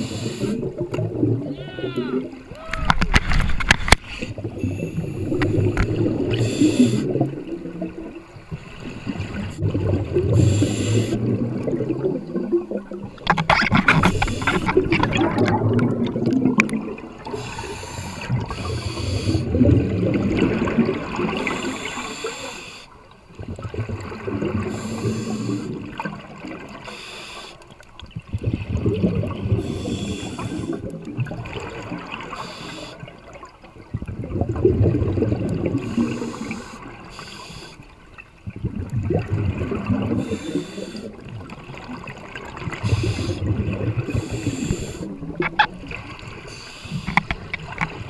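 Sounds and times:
regulator inhale hiss: 0:00.0 - 0:00.6, 0:06.3 - 0:07.1, 0:10.3 - 0:11.2, 0:17.3 - 0:19.6, 0:21.4 - 0:23.0, 0:24.7 - 0:25.8, 0:26.8 - 0:27.7, 0:29.6 - 0:30.8, 0:32.3 - 0:33.1, 0:35.8 - 0:37.9, 0:40.2 - 0:41.2, 0:42.8 - 0:43.4, 0:44.1 - 0:45.2, 0:46.4 - 0:47.3
gurgling exhaled bubbles: 0:00.0 - 0:22.1, 0:23.3 - 0:26.9, 0:28.0 - 0:48.0.

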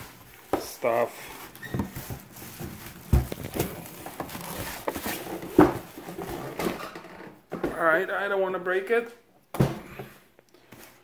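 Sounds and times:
cardboard box rustling: 0:01.4 - 0:06.6.

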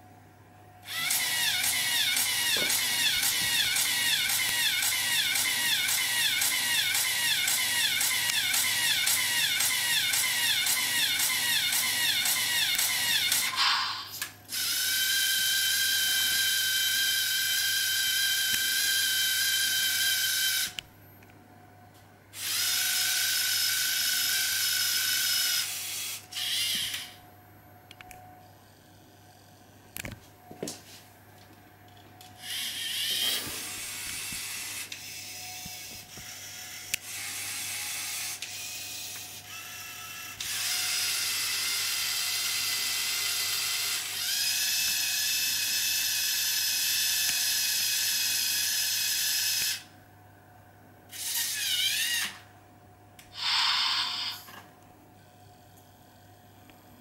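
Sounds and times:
servo motors whirring: 0:00.9 - 0:15.8, 0:32.4 - 0:39.0, 0:53.4 - 0:54.6.

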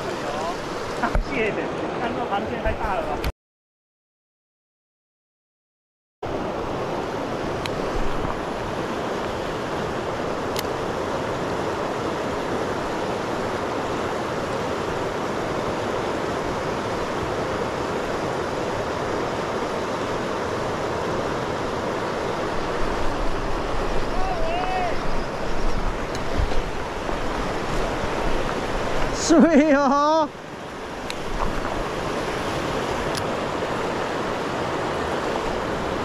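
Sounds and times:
river rapids rushing over stones: 0:06.3 - 0:36.0.

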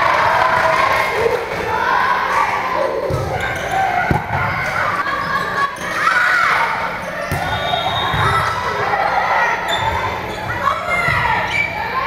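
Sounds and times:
people shouting and chattering: 0:00.0 - 0:12.0
volleyball hits: 0:03.0 - 0:05.1, 0:07.2 - 0:08.7.

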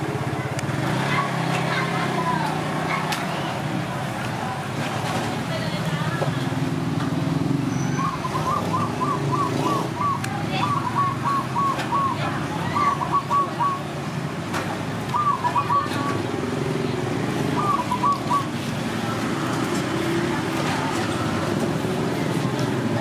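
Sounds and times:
street traffic rumble: 0:00.0 - 0:23.0
bird calling: 0:07.6 - 0:14.2, 0:14.9 - 0:19.2.

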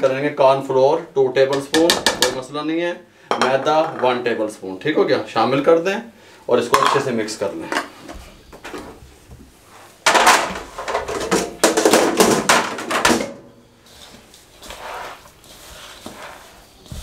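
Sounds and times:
hands mixing food in plastic bowl: 0:13.8 - 0:17.0.

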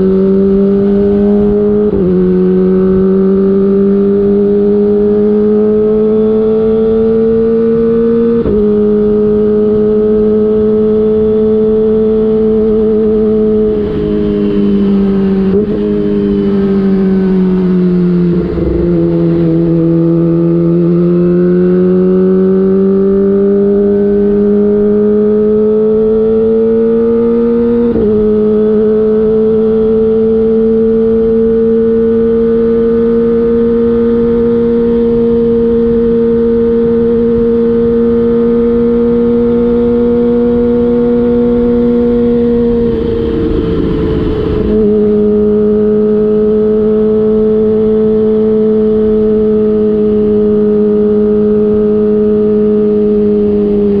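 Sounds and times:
motorcycle engine at high revs: 0:00.0 - 0:54.0
wind noise: 0:41.2 - 0:48.2.

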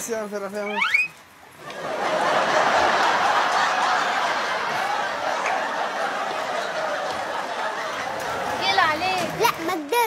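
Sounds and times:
crowd laughing: 0:01.6 - 0:08.8.

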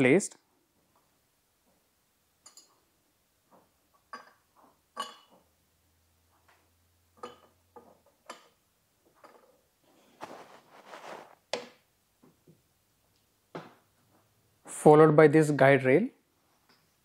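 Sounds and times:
short scraping rustle: 0:09.9 - 0:11.4.

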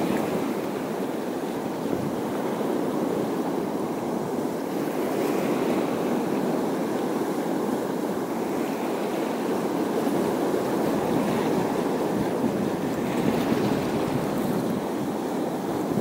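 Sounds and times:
wind on microphone: 0:00.0 - 0:03.7, 0:09.9 - 0:16.0
surf on rocky shore: 0:00.0 - 0:16.0.

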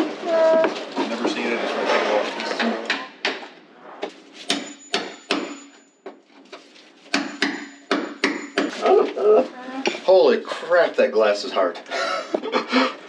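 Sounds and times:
hammer striking chisel: 0:04.5 - 0:05.8, 0:07.1 - 0:08.8.

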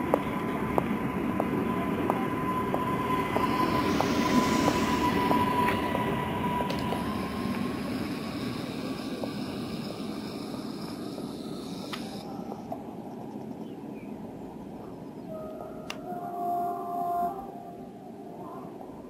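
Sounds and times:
light footsteps: 0:00.0 - 0:07.6
electric train motor whine: 0:00.0 - 0:12.7
rail and wheel rumble: 0:00.0 - 0:19.0.

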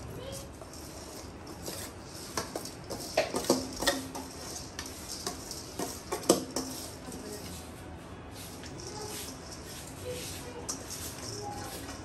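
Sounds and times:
metal spoon clinking on steel: 0:00.6 - 0:07.4, 0:08.7 - 0:10.0, 0:10.6 - 0:12.0.

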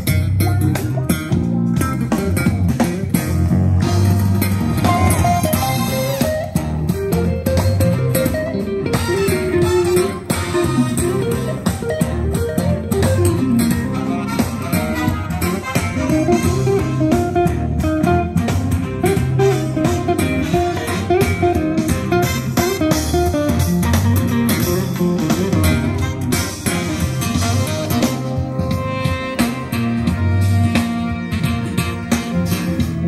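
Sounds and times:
guitar music with bass: 0:00.0 - 0:33.0.

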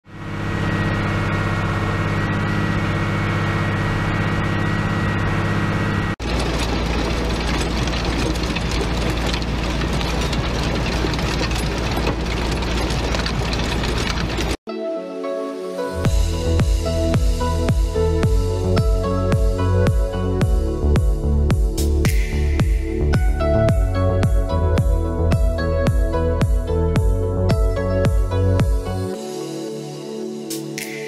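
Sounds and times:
machinery engine running: 0:00.0 - 0:14.6
thin high whine: 0:00.1 - 0:06.2.

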